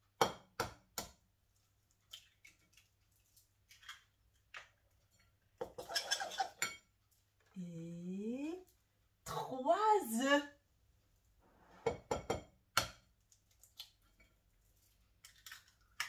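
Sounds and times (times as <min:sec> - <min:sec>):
egg tapping on glass bowl: 0:11.9 - 0:13.0.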